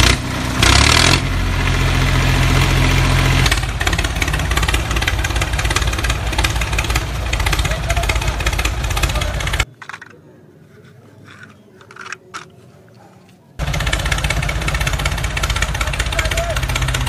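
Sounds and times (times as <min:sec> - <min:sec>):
tractor engine idling: 0:00.0 - 0:09.7, 0:13.6 - 0:17.0.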